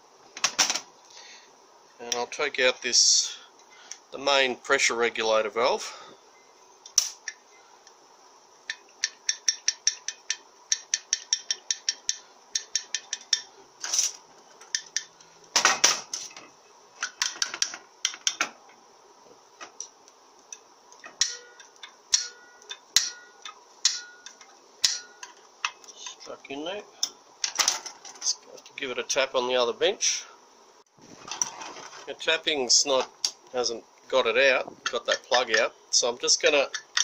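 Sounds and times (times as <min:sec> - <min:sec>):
screwdriver tapping on metal: 0:09.0 - 0:13.5.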